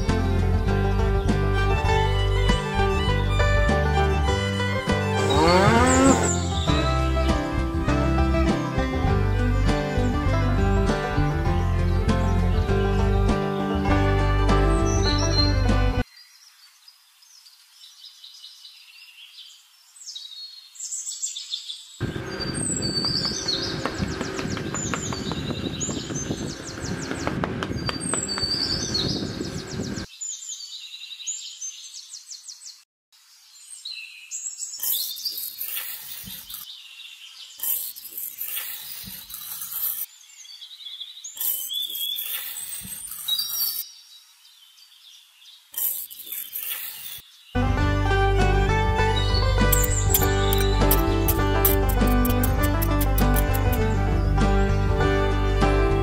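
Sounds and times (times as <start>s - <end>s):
birds chirping: 0.0s - 7.8s, 9.4s - 32.8s, 33.6s - 47.6s, 49.0s - 55.6s
rough buzzy sound: 1.8s - 7.1s
trowel scraping sand: 5.2s - 6.7s, 34.8s - 36.7s, 37.6s - 40.1s, 41.4s - 43.8s, 45.8s - 47.2s, 49.7s - 53.8s.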